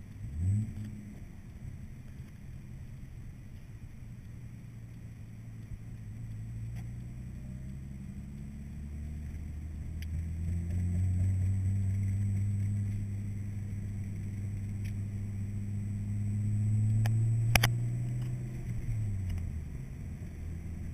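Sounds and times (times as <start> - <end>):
car engine hum from inside cabin: 0.0 - 20.9
sharp click: 16.9 - 18.4.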